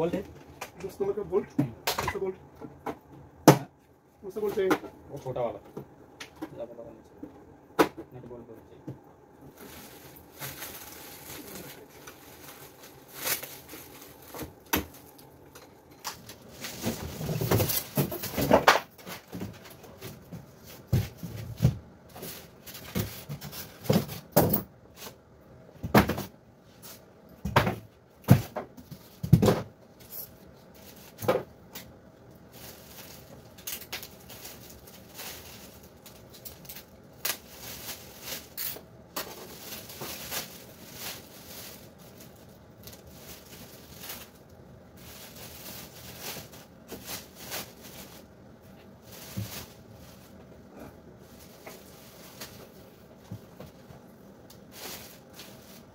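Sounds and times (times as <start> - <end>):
plastic wrap and cardboard rustling: 0.0 - 2.4, 4.2 - 5.6, 8.1 - 25.2, 25.9 - 55.9
fridge knocking and clattering: 0.0 - 3.8, 16.1 - 22.0, 22.8 - 24.8, 25.7 - 26.4, 27.4 - 29.8.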